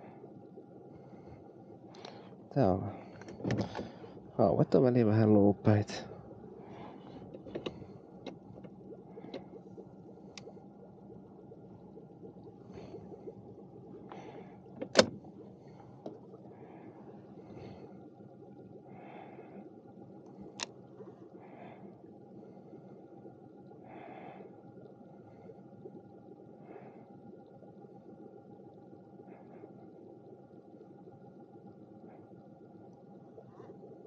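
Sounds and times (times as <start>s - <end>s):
boat low hum: 0.0s - 34.0s
faint steady whine: 0.0s - 34.0s
small click: 20.6s - 20.8s.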